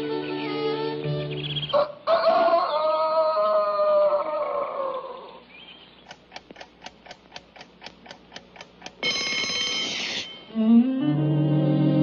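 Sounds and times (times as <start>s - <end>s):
alarm clock ticking: 6.6s - 10.5s
alarm clock bell ringing: 9.0s - 10.5s.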